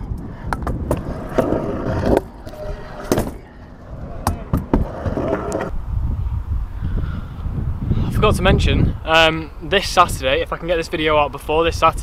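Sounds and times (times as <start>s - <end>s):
scooter wheels rolling on tarmac: 0.6s - 5.8s.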